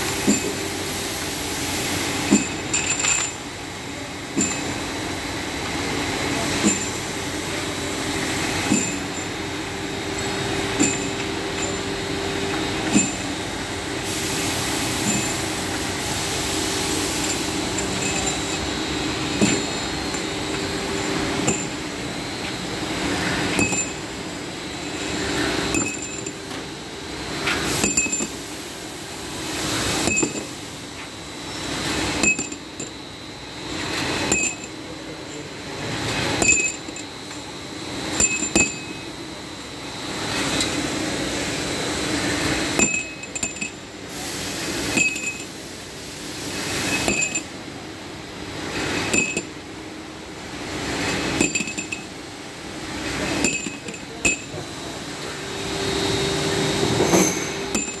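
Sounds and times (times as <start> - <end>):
grinder machine running: 0.0 - 49.7, 50.4 - 58.0
ringing metallic clinks: 6.6 - 7.0, 10.2 - 12.0, 15.0 - 15.4, 17.2 - 21.8, 23.5 - 24.1, 25.7 - 26.4, 27.8 - 28.4, 30.0 - 30.5, 32.2 - 32.9, 34.3 - 34.8, 36.4 - 37.2, 38.2 - 39.1, 42.8 - 43.8, 44.9 - 45.5, 46.8 - 47.5, 49.0 - 49.5, 51.1 - 52.1, 53.4 - 54.6, 57.0 - 58.0.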